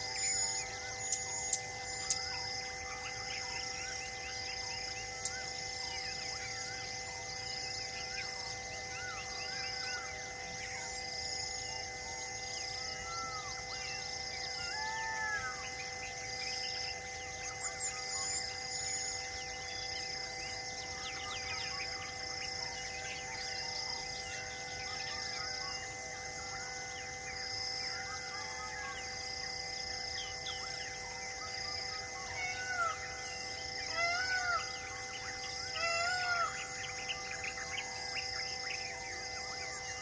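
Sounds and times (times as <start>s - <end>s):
loud arching bird calls: 12.8s - 16.6s, 31.7s - 38.9s
birds chirping and calling: 32.2s - 40.0s.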